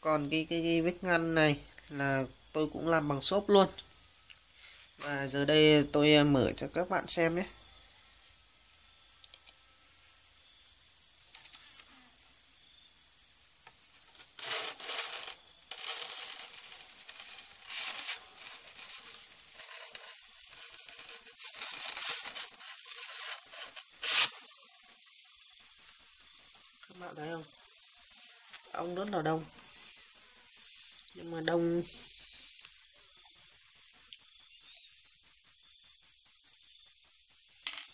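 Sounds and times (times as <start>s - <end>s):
insect chirping fast: 0.0s - 37.9s
polystyrene lid scraping and rustling: 13.9s - 25.0s.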